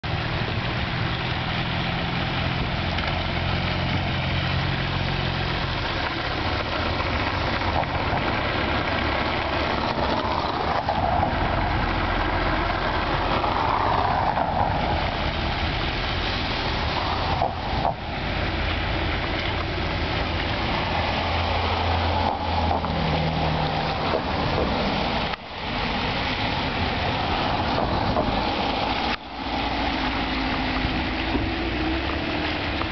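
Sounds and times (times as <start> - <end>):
cars driving past: 0.0 - 32.9
wind noise: 0.0 - 32.9.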